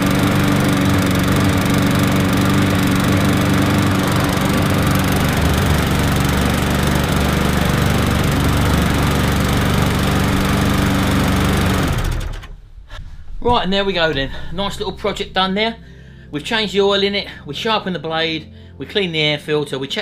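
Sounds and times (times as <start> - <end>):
lawnmower engine running: 0.0 - 12.6.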